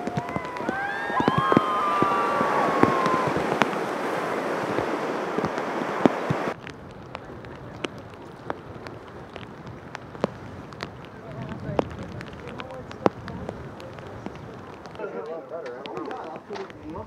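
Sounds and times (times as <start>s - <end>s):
long high call: 0.0s - 6.6s
light rain: 0.0s - 17.0s
raindrops tapping on pier: 0.0s - 17.0s
waves breaking on beach: 0.0s - 17.0s.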